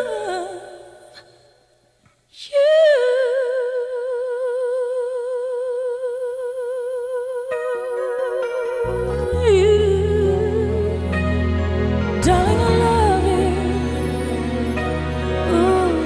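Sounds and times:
soft accompaniment: 0:07.5 - 0:16.0
singer holding long note: 0:08.2 - 0:16.0.

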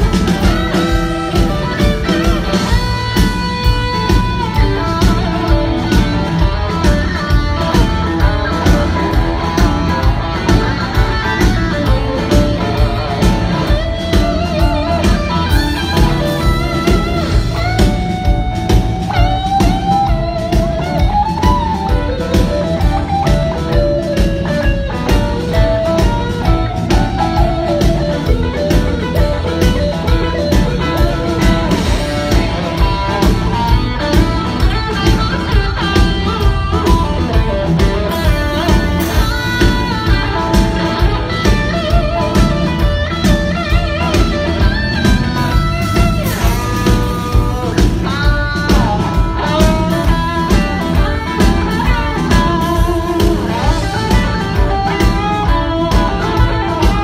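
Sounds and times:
blues-rock band playing: 0:00.0 - 0:57.0
lead electric guitar: 0:00.0 - 0:57.0.

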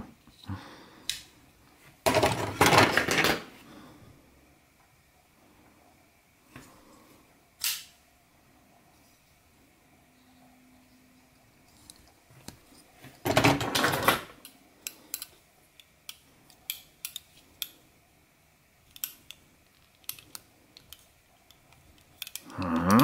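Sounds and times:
knives clicking and tapping: 0:14.4 - 0:17.8, 0:18.9 - 0:23.0.

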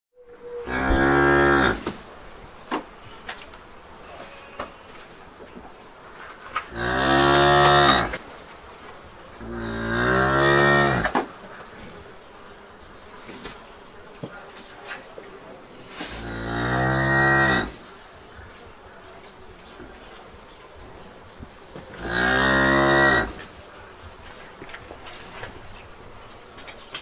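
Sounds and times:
barn background noise: 0:00.2 - 0:27.0
cattle mooing: 0:00.6 - 0:01.8, 0:06.7 - 0:08.2, 0:09.4 - 0:11.2, 0:16.2 - 0:17.8, 0:22.0 - 0:23.5.

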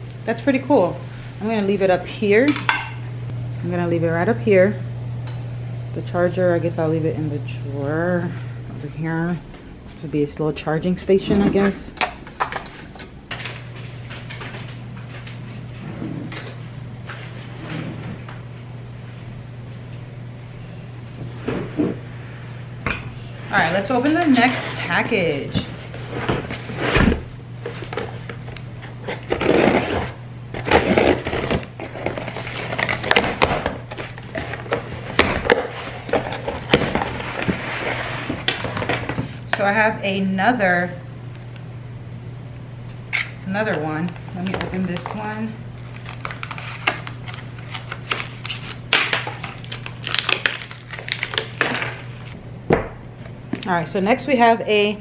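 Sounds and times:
plastic packaging crinkling: 0:45.8 - 0:52.4.

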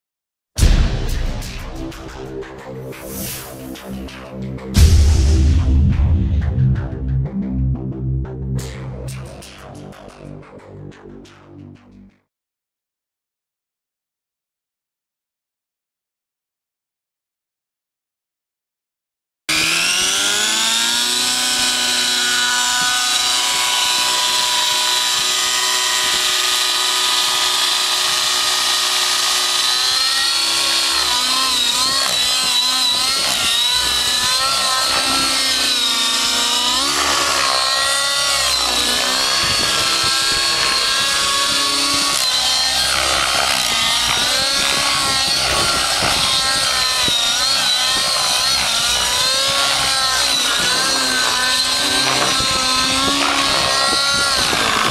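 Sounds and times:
model helicopter engine and rotor: 0:19.5 - 0:54.9.

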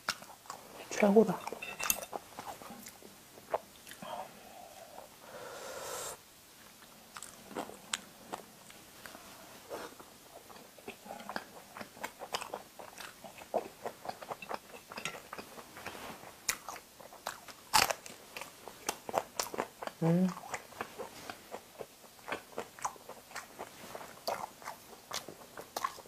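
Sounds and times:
crunchy bites and chewing: 0:16.5 - 0:26.0.

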